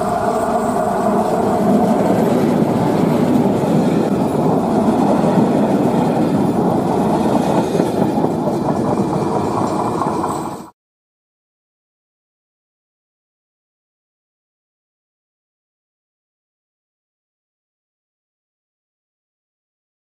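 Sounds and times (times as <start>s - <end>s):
diesel locomotive engine: 0.0s - 10.7s
train wheels clattering on rails: 0.0s - 10.7s.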